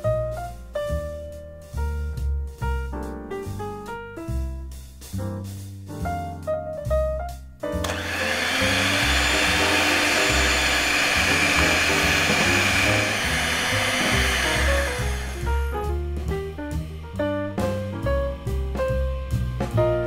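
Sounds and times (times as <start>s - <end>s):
electric hand mixer whipping: 7.8s - 15.7s.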